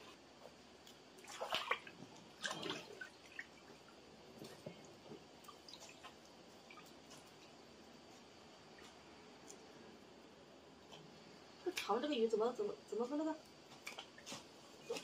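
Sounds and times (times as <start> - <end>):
water splashing and dripping: 0.8 - 7.7.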